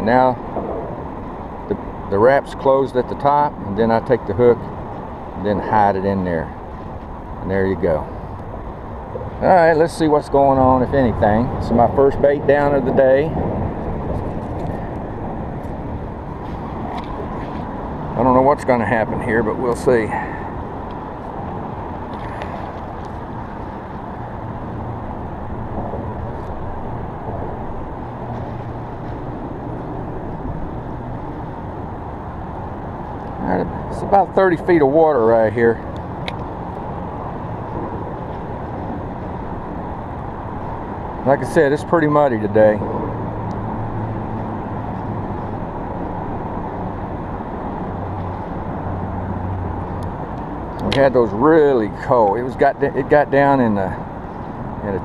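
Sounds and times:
low hum: 0:00.0 - 0:02.3
road traffic rumble: 0:00.0 - 0:55.0.

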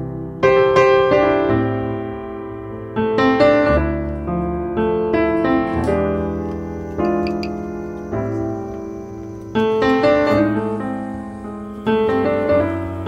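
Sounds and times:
piano chords: 0:00.0 - 0:13.0.

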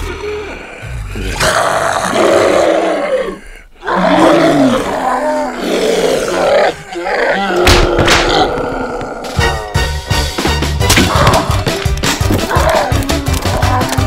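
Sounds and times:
zombie groaning and growling: 0:00.0 - 0:09.5, 0:12.4 - 0:14.0.

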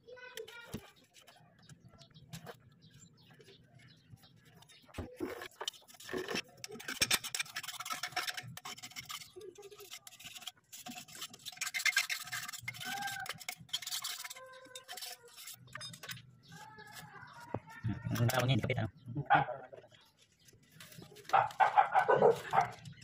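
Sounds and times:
metal blade scraping rust: 0:05.5 - 0:17.4.

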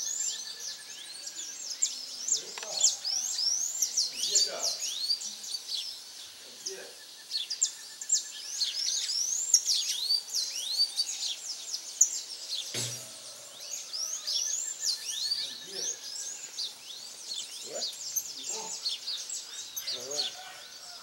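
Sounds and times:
birds chirping: 0:00.0 - 0:21.0
faint rapid bird trill: 0:00.0 - 0:21.0
dull knock: 0:12.8 - 0:13.1.

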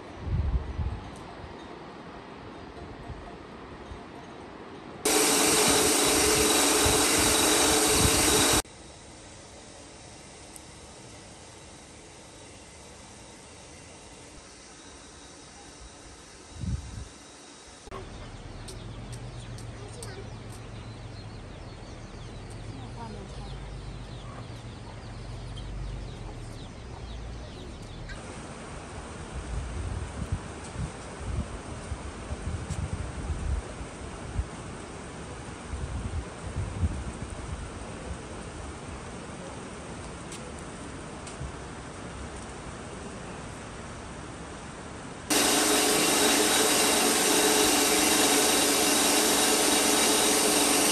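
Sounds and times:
small motor running: 0:05.1 - 0:20.2, 0:45.3 - 0:50.9
small birds chirping: 0:17.9 - 0:28.2.

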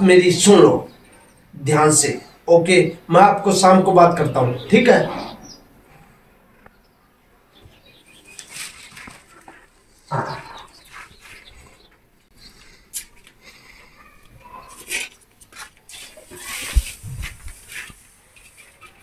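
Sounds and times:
straw rustling and crunching: 0:08.2 - 0:10.0
footsteps: 0:12.6 - 0:19.0.

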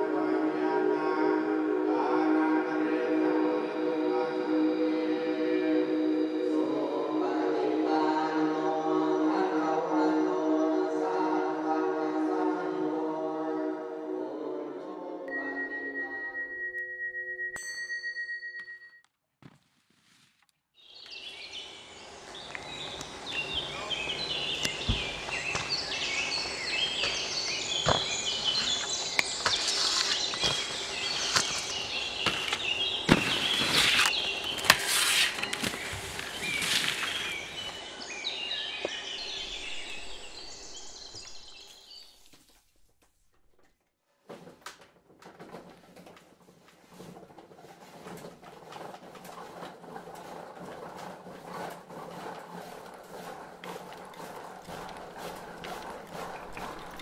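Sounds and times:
small birds chirping: 0:20.8 - 0:42.4, 0:53.1 - 0:57.0.

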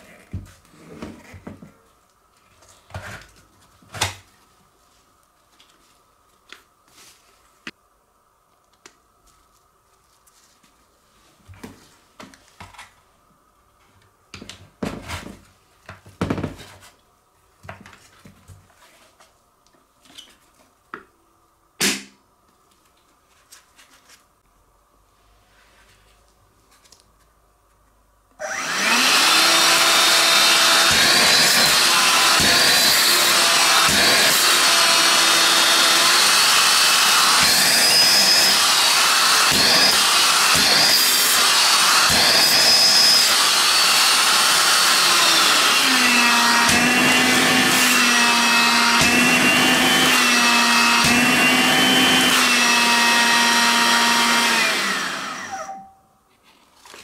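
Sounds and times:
vacuum cleaner motor whine: 0:28.4 - 0:55.9.

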